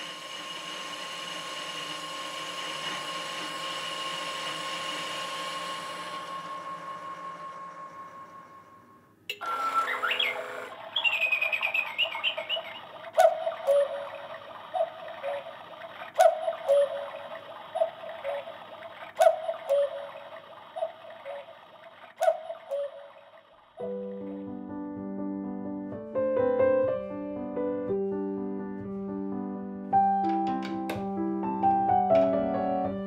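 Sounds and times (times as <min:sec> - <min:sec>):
cuckoo clock ticking: 0:09.3 - 0:23.8
short sliding chirping sound: 0:09.4 - 0:23.5.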